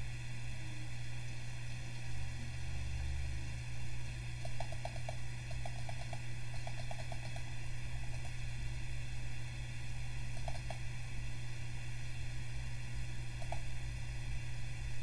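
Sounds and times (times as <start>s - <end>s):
low electrical hum: 0.0s - 15.0s
computer mouse clicking: 4.4s - 7.5s, 8.1s - 8.4s, 10.3s - 10.8s, 13.4s - 13.7s.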